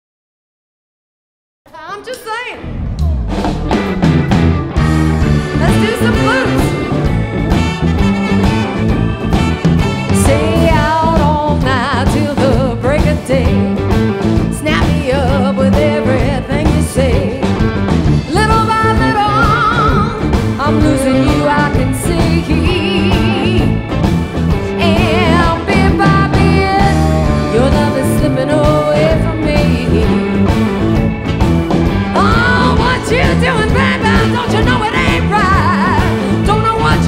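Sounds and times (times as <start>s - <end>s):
blues band playing: 2.0s - 37.0s
woman singing with vibrato: 10.1s - 13.8s, 14.5s - 17.4s, 18.3s - 23.7s, 24.8s - 30.6s, 32.1s - 37.0s.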